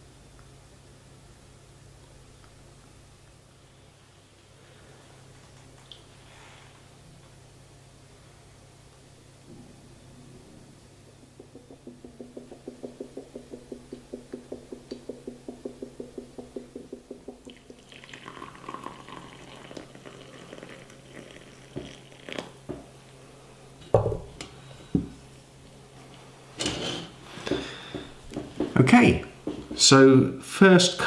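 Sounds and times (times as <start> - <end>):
sharp knocks: 11.1 - 17.5
coffee maker gurgling: 11.7 - 22.9
coffee pouring into mug: 17.3 - 22.8.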